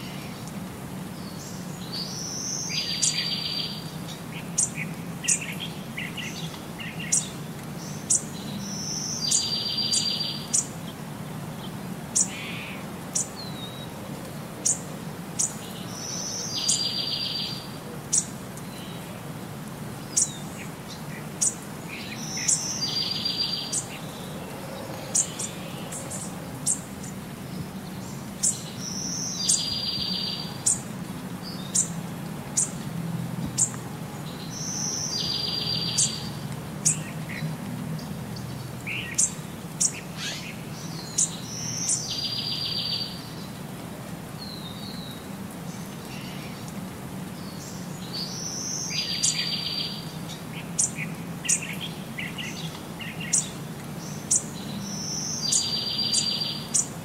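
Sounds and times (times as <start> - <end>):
birds chirping: 1.2 - 14.0, 20.0 - 32.8, 33.4 - 43.7, 44.4 - 57.0.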